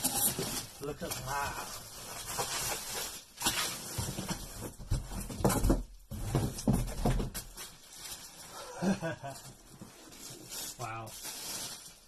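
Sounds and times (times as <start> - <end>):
bubble wrap crinkling: 0.0 - 5.4, 6.1 - 12.0
dull knocks of case and box: 4.1 - 7.5.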